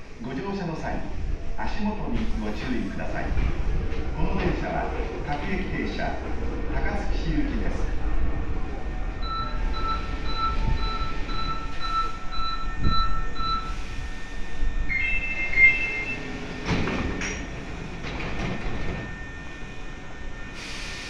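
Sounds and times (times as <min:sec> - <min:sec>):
stopped train humming: 0:00.0 - 0:21.0
electronic warning beeps: 0:09.2 - 0:16.4.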